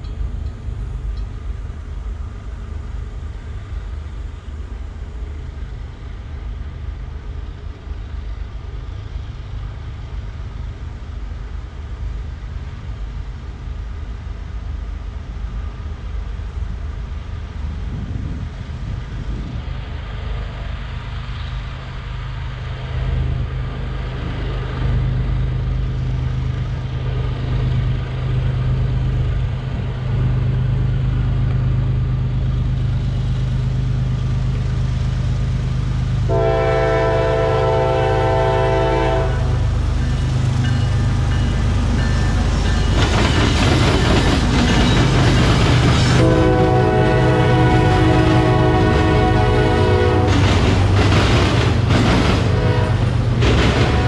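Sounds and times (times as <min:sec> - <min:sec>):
diesel locomotive engines rumbling: 0:00.0 - 0:54.0
train wheels rushing past: 0:17.6 - 0:54.0
locomotive horn blast: 0:36.3 - 0:39.7, 0:46.2 - 0:50.4, 0:52.4 - 0:54.0.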